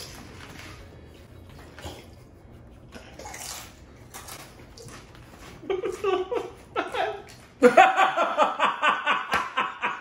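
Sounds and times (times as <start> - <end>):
crunching chewing and slurping: 0.0 - 5.6.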